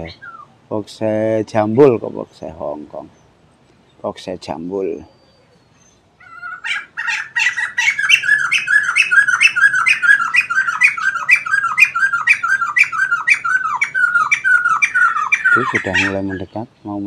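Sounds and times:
bird squawking calls: 0:00.0 - 0:00.6, 0:04.8 - 0:17.0.

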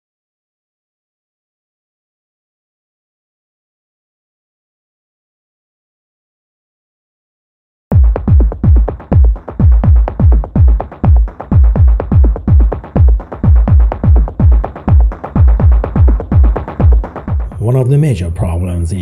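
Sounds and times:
electronic music with kick drum beat: 0:07.9 - 0:19.0.

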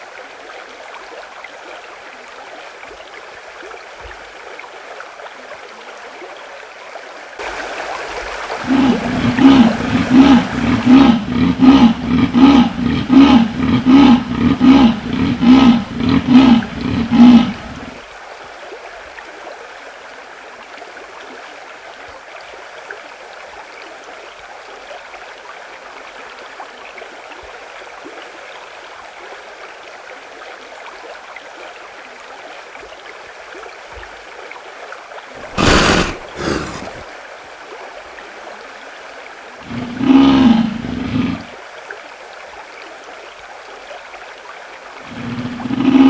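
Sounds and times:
leopard snarling: 0:08.6 - 0:18.0, 0:35.4 - 0:37.1, 0:39.6 - 0:41.5, 0:45.1 - 0:46.0.

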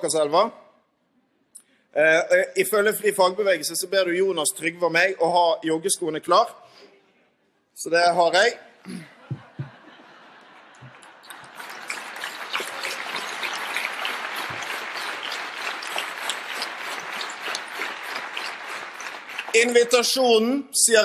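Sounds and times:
soft knocks at a microphone: 0:09.3 - 0:09.8
audience applauding: 0:09.3 - 0:20.4.

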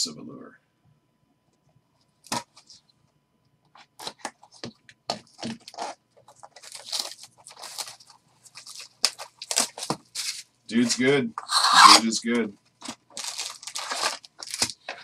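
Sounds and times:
shrink wrap crinkling and tearing: 0:05.4 - 0:12.0, 0:12.8 - 0:15.0.

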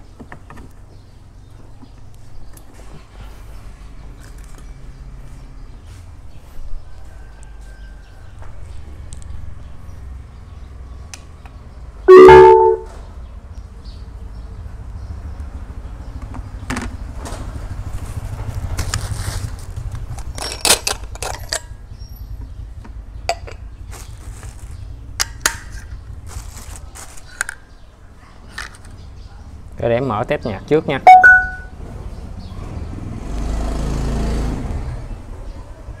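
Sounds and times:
short electronic tone: 0:12.1 - 0:12.9, 0:31.1 - 0:31.7
plastic wrapper crinkling: 0:26.3 - 0:27.4.

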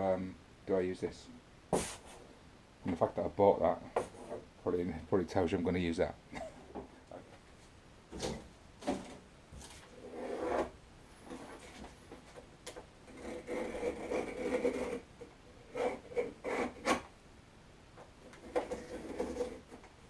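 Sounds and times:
scraping foam board: 0:09.6 - 0:12.0, 0:13.1 - 0:17.1, 0:18.3 - 0:19.9.

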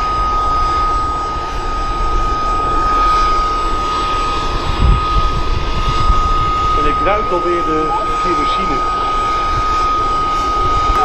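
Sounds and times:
auxiliary power unit whining: 0:00.0 - 0:11.0.

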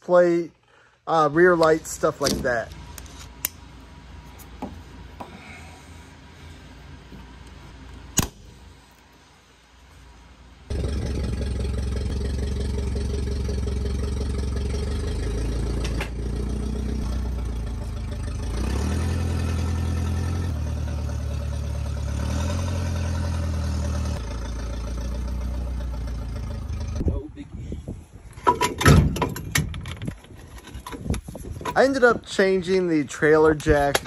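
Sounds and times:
forklift engine running: 0:01.6 - 0:27.1.

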